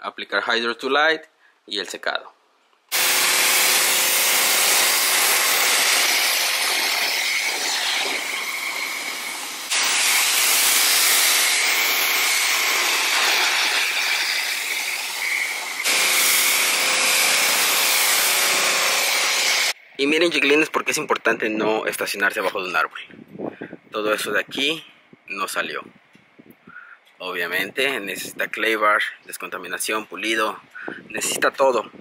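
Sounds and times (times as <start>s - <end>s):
pressure washer spray hissing: 2.9s - 19.8s.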